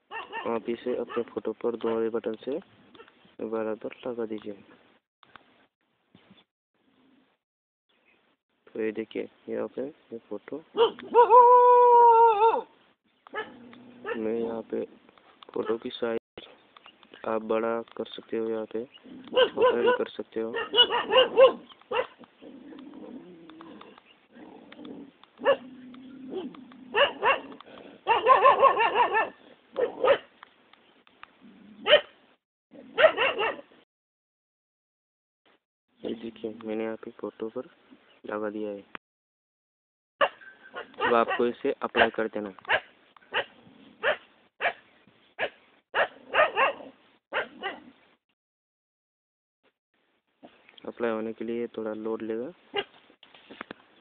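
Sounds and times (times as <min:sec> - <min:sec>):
dog barking: 0:00.1 - 0:02.0, 0:10.8 - 0:11.5, 0:13.3 - 0:14.3, 0:15.6 - 0:15.8, 0:19.3 - 0:22.2, 0:25.4 - 0:25.7, 0:26.3 - 0:30.3, 0:31.8 - 0:32.2, 0:32.8 - 0:33.7, 0:40.2 - 0:44.8, 0:45.4 - 0:47.9, 0:52.7 - 0:52.9.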